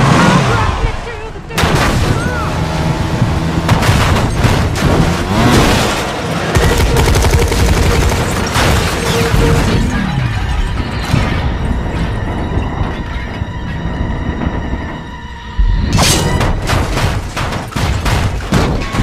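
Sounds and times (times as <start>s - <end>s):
film music score: 0.0s - 19.0s
rapid gunshots: 3.7s - 9.9s, 16.4s - 19.0s.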